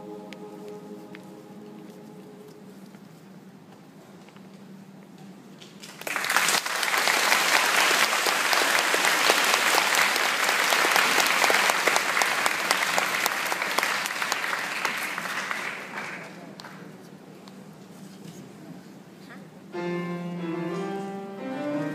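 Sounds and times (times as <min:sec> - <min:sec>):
audience applauding: 0:05.8 - 0:16.9.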